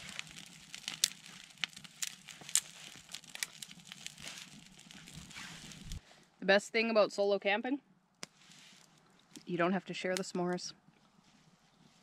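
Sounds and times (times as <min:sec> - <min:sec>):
campfire crackling and popping: 0:00.0 - 0:06.0, 0:08.2 - 0:10.6.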